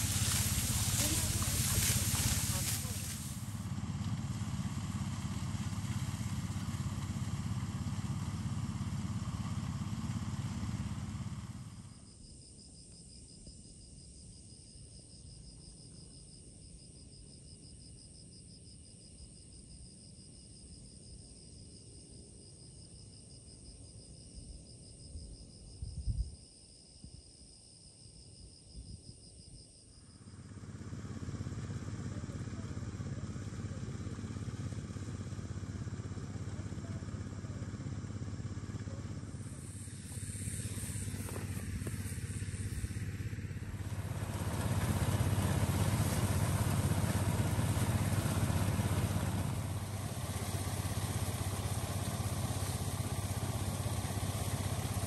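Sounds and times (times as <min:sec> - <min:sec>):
small engine running: 0:00.0 - 0:12.1, 0:30.2 - 0:55.0
insects trilling: 0:39.4 - 0:48.2.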